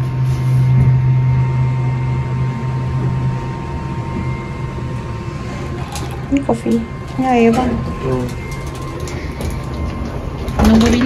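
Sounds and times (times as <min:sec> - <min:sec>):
faint high whine: 0:00.0 - 0:11.0
lift low hum: 0:00.0 - 0:11.0.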